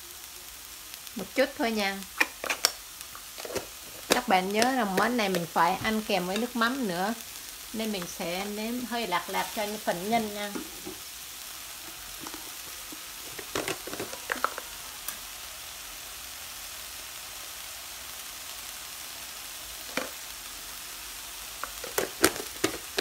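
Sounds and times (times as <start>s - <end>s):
meat sizzling in a frying pan: 0.0s - 23.0s
chopsticks clicking and scraping: 2.1s - 5.5s, 11.9s - 15.2s, 21.6s - 23.0s.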